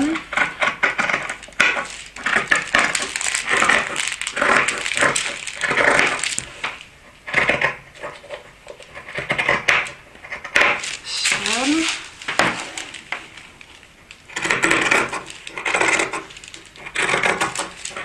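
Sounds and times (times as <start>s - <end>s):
shears snipping fabric: 10.6s - 13.0s.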